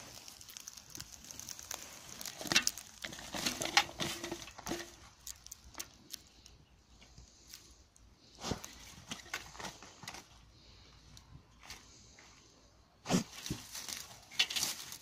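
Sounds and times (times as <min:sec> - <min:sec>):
dry leaves rustling: 0:00.0 - 0:06.5, 0:13.1 - 0:15.0.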